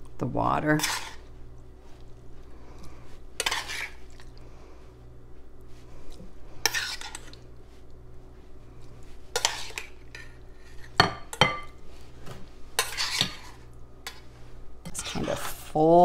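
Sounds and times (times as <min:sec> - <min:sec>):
metal spoon scraping a pot: 0:00.8 - 0:01.2, 0:03.4 - 0:04.0, 0:06.6 - 0:07.4, 0:09.3 - 0:11.4, 0:12.8 - 0:14.2.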